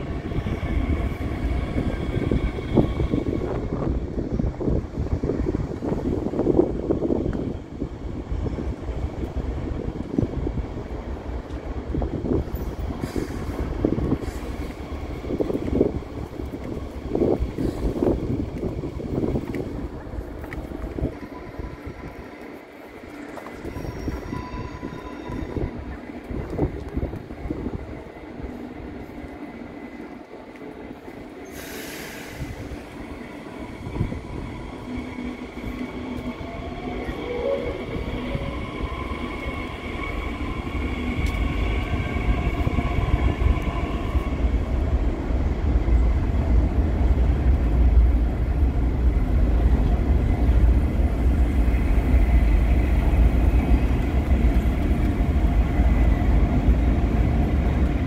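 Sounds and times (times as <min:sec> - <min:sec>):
train deep rumble: 0:00.0 - 0:58.0
train wheels squealing: 0:23.2 - 0:25.9, 0:31.4 - 0:44.4.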